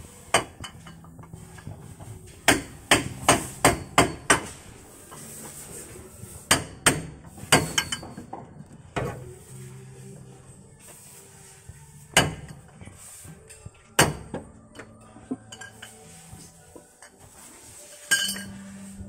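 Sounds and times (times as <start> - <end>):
metal clanking on metal: 6.5 - 9.2, 14.0 - 16.0, 18.1 - 18.6.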